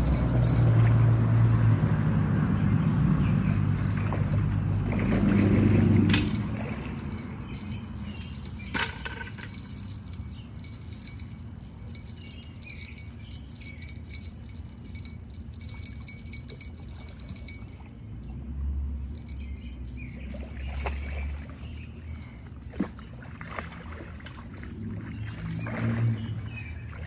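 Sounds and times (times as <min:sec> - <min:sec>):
fishing reel clicking: 0:03.5 - 0:17.9.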